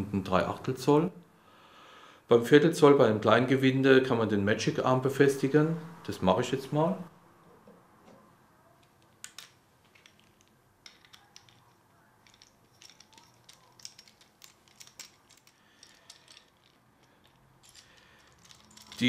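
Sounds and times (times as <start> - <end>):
faint metallic clicks and scrapes: 7.5 - 19.0.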